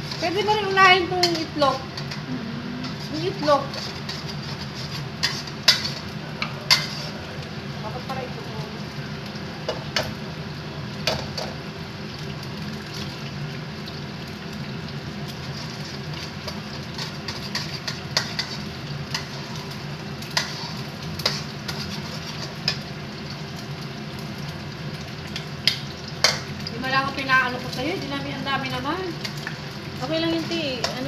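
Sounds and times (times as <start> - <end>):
metal spatula scraping wok: 0.0 - 7.4, 15.3 - 22.9
food sizzling in a wok: 0.0 - 31.0.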